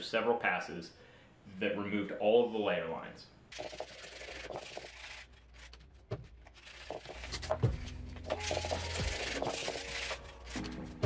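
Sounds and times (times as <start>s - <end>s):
hand sanding rubbing: 3.5s - 11.0s.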